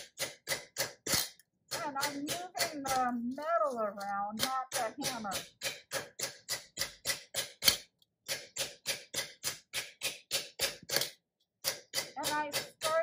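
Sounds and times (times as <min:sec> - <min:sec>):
mallet striking copper on metal: 0:04.4 - 0:13.0.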